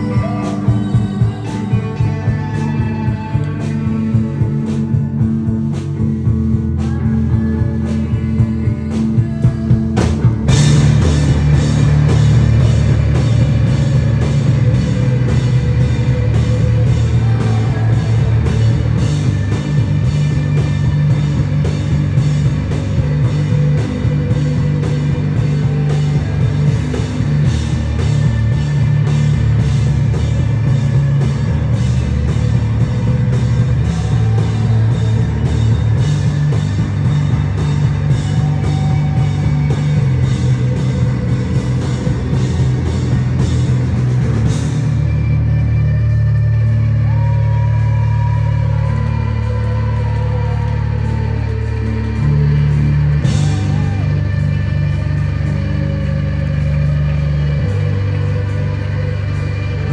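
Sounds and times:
electric guitar playing alone: 0:00.0 - 0:08.4
live rock band playing: 0:00.0 - 0:59.9
steady drum beat: 0:00.0 - 0:59.9.

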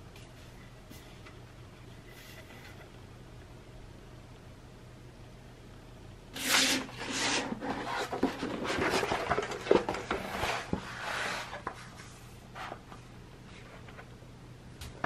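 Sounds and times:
paper rustling and scraping: 0:06.4 - 0:13.9.

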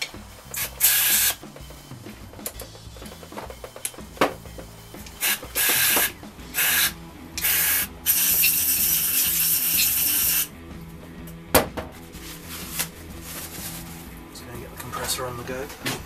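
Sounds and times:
aerosol can spraying: 0:00.1 - 0:04.4, 0:05.0 - 0:10.5, 0:12.3 - 0:14.0.

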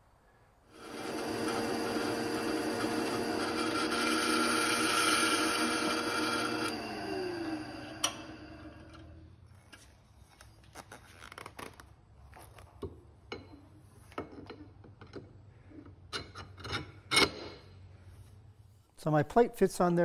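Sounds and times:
drill press motor spinning down: 0:00.7 - 0:09.2.

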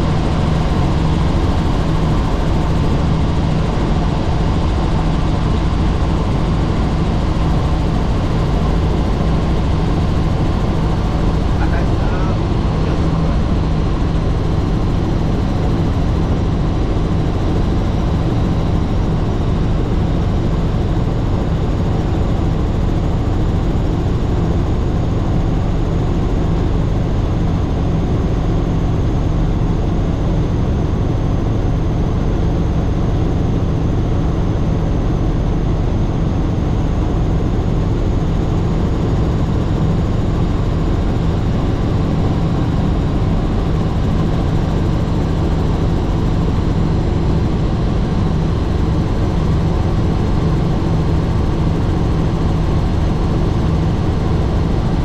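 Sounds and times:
helicopter engine and rotor: 0:00.0 - 0:55.0.

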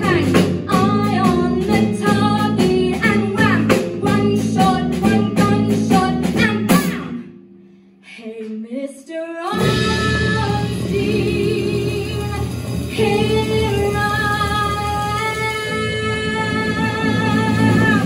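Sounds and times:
live band playing: 0:00.0 - 0:07.4, 0:09.5 - 0:18.0
woman singing show tune: 0:08.1 - 0:18.0.

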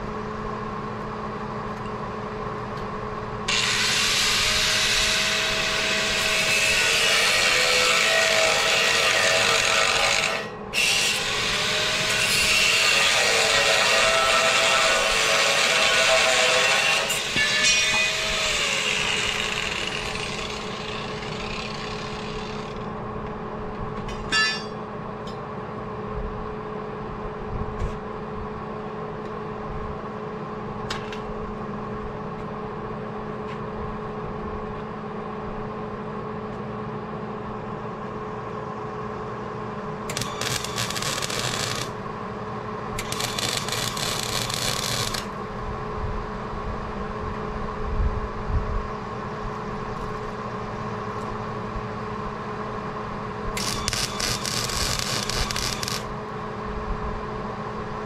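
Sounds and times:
machine hum: 0:00.0 - 0:36.4, 0:37.0 - 0:58.0
welding arc crackling: 0:40.1 - 0:42.0, 0:43.0 - 0:45.4, 0:53.6 - 0:56.1.

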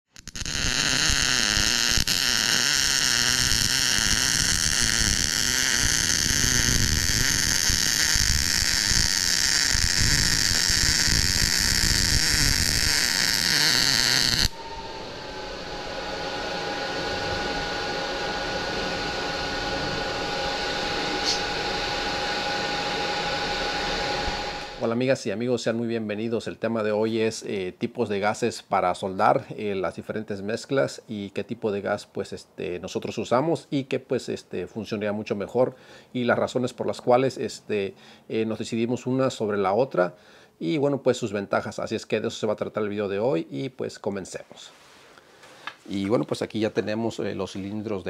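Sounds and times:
welding arc crackling: 0:00.1 - 0:14.6
steady hum with high tones: 0:00.5 - 0:26.3.

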